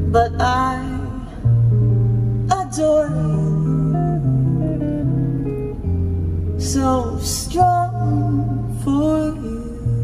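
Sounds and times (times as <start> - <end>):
person singing: 0.0 - 1.6, 2.4 - 4.3, 6.6 - 10.0
acoustic guitar: 0.0 - 10.0
deep bass notes: 0.0 - 10.0.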